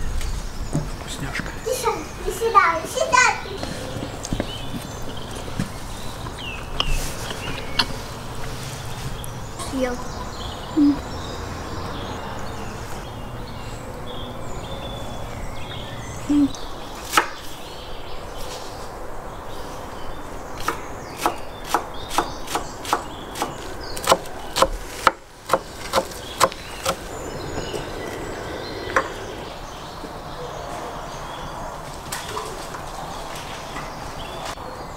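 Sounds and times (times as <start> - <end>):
knife chopping on wooden board: 20.6 - 27.0.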